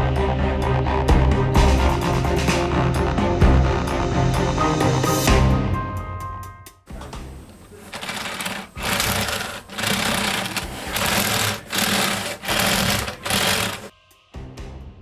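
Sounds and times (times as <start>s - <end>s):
plastic track links clattering: 7.4s - 13.9s.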